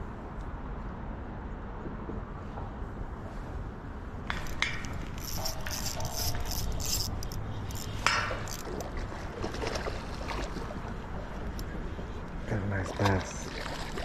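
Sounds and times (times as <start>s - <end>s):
fishing reel clicks: 4.3s - 8.9s.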